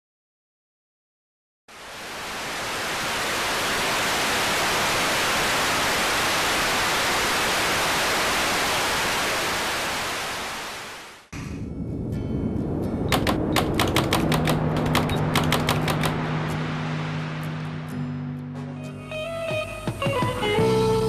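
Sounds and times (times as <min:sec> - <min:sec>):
television static hiss: 0:01.7 - 0:11.2.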